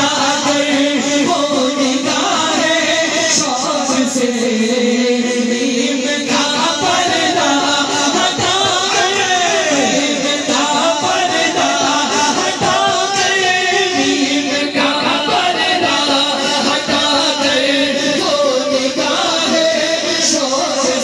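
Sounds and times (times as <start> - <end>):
men singing devotional song: 0.0 - 21.0.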